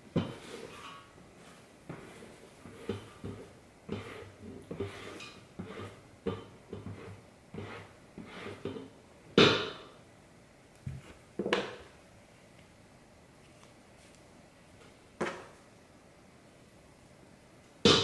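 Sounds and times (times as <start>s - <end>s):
spatula scraping cutting board: 0.2s - 9.0s.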